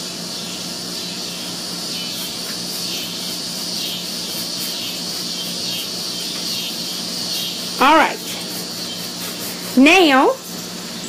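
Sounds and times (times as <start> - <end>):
steady hiss: 0.8 - 11.0
paintbrush swishing on wood: 7.3 - 10.5.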